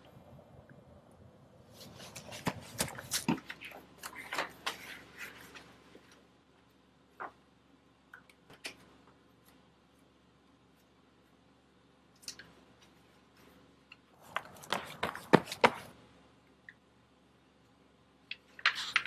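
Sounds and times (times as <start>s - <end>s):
papers rustling: 1.7s - 6.2s, 14.2s - 16.0s.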